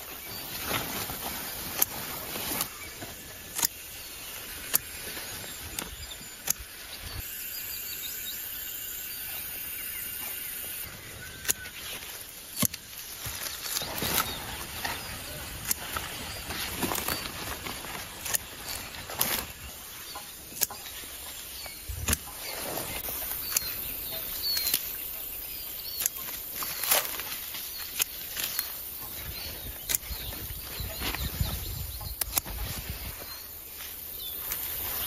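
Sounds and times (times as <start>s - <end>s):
rustling leaves: 0.0s - 35.0s
steady outdoor hiss: 0.0s - 35.0s
scissors snipping vines: 1.6s - 5.1s, 5.7s - 6.8s, 11.4s - 19.6s, 22.0s - 22.4s, 23.1s - 33.0s.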